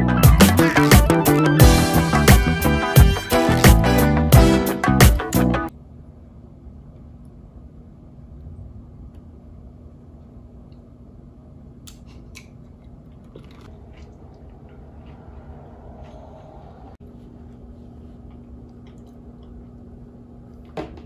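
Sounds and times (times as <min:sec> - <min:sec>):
room hum: 0:00.0 - 0:21.0
chip crunching: 0:00.3 - 0:01.6, 0:12.4 - 0:15.4.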